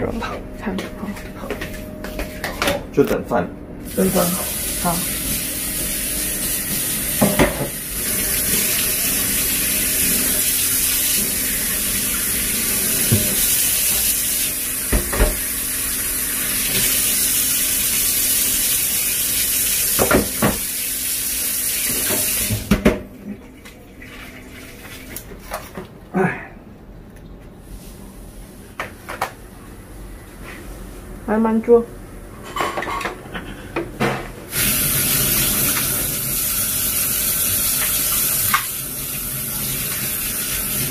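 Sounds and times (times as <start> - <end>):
tap running into steel sink: 20.0 - 20.7.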